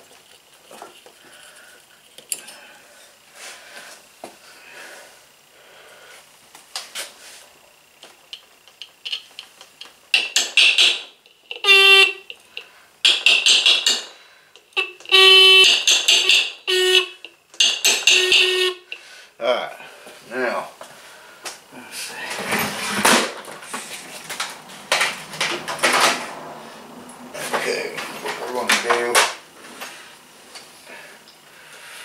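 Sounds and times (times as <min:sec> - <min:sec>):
scooter horn blasts: 0:11.6 - 0:12.3, 0:14.8 - 0:17.2, 0:17.9 - 0:18.9.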